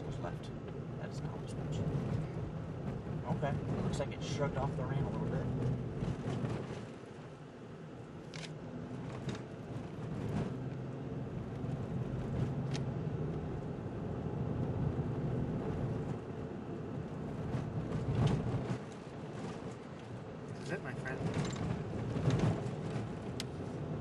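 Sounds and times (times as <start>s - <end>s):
car engine hum: 0.0s - 24.0s
tyre rumble on dirt road: 5.2s - 7.2s, 17.2s - 24.0s.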